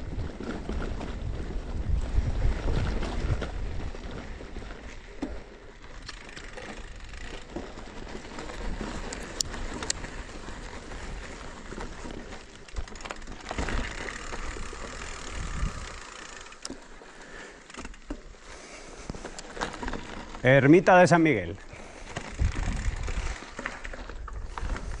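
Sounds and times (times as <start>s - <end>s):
bike clicks and rattles: 0.0s - 25.0s
tyres rolling over stones: 0.1s - 25.0s.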